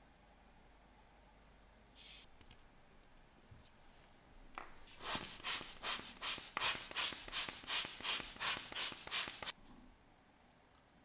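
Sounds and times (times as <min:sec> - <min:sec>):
hand air blower puffs: 0:05.0 - 0:09.6.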